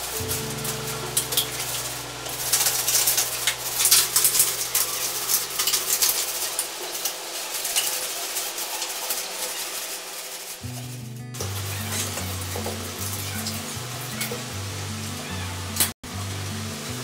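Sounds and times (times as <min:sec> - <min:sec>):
newspaper rustling and crinkling: 0:00.0 - 0:12.5.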